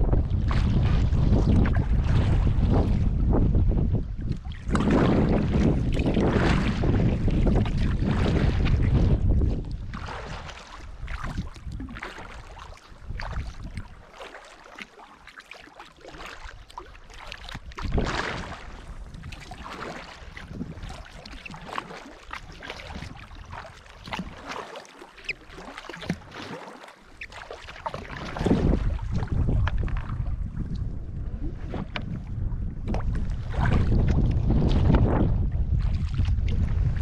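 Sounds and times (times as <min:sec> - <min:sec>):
water sloshing around a kayak: 0:00.0 - 0:37.0.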